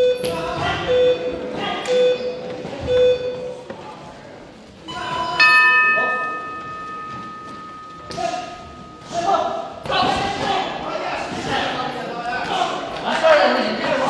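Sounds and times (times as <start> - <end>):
bell ringing: 5.4 - 9.1.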